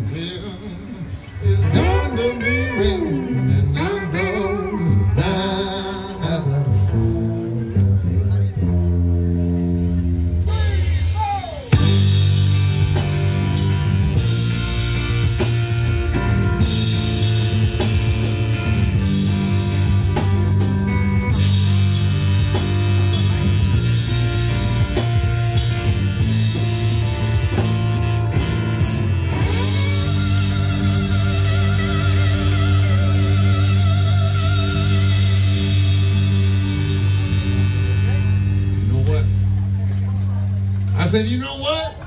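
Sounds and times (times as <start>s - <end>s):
bass line: 0.0s - 42.0s
drums: 0.0s - 42.0s
electric guitar: 0.0s - 42.0s
saxophone: 8.6s - 37.9s.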